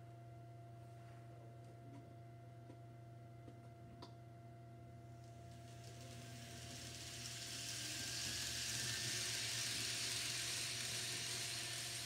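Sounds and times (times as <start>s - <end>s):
model train whirring: 5.4s - 12.0s.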